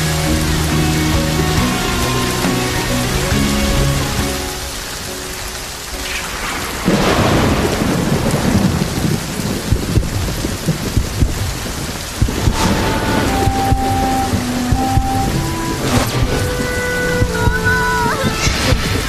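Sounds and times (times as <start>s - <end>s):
heavy rain pouring: 0.0s - 19.0s
thunder rumbling: 0.0s - 19.0s
sharp thunder crack: 6.0s - 19.0s.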